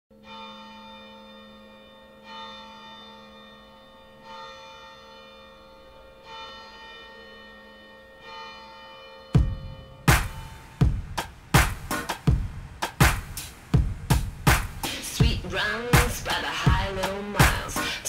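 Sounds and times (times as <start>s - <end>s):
bell-like chime ringing: 0.2s - 10.8s.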